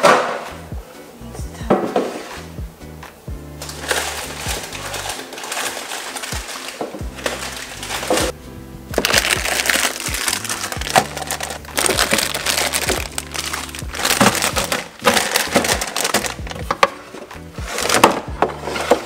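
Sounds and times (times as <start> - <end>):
background music: 0.0 - 19.0
plastic packets crinkling: 3.6 - 8.3, 9.0 - 19.0.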